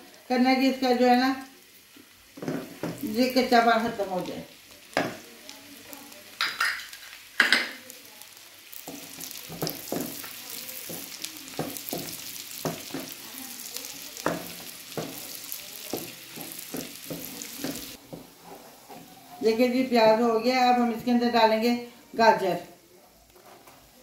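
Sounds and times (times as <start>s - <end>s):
onion sizzling in a wok: 0.0s - 24.0s
wooden spoon stirring in a pan: 1.6s - 19.9s, 23.3s - 24.0s.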